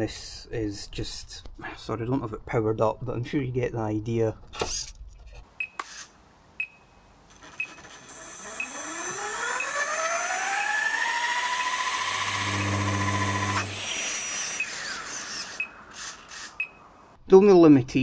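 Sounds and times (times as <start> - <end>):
low hum: 7.3 - 14.6
motor whine rising in pitch: 7.3 - 15.7.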